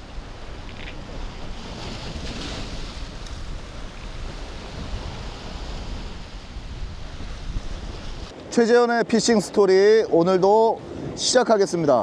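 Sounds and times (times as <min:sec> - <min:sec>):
wind buffeting microphone: 0:00.0 - 0:08.4
choppy sea: 0:00.0 - 0:12.0.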